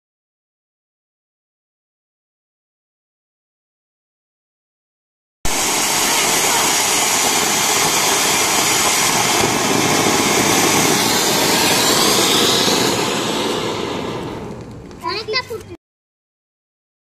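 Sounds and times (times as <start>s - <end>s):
firework fountain hissing: 5.5s - 15.6s.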